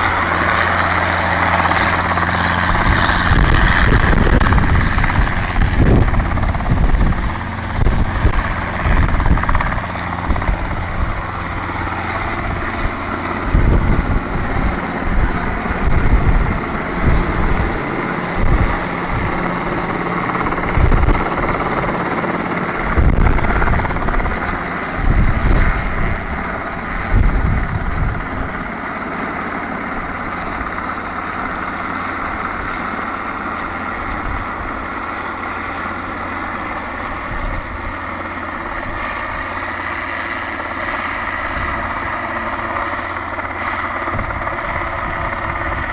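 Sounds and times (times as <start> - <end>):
wind buffeting microphone: 0.0 - 28.8, 41.2 - 45.9
helicopter engine and rotors: 0.0 - 45.9.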